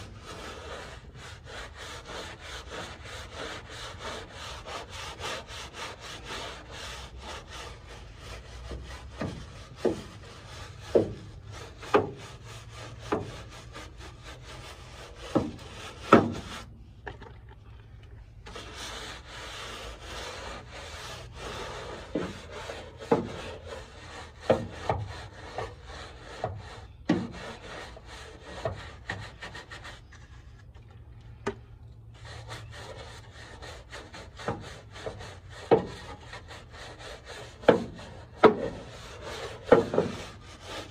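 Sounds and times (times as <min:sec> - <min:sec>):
stiff brush scrubbing: 0:00.0 - 0:31.2, 0:32.0 - 0:40.9
loud scrapes: 0:18.4 - 0:30.7, 0:32.1 - 0:40.9.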